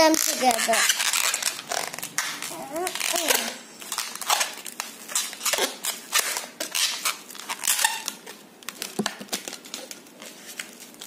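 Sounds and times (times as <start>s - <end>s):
balloon rubbing and scraping: 0.0s - 8.0s
balloon squeak: 0.0s - 8.3s.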